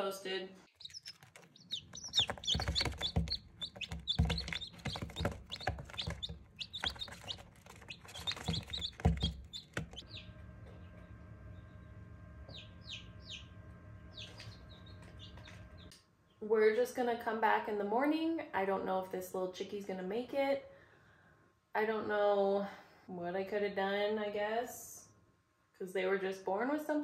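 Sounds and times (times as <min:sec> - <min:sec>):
incubator fan humming: 0:00.0 - 0:15.9
chicks rustling and knocking: 0:00.7 - 0:11.2
chicks peeping: 0:00.7 - 0:15.9.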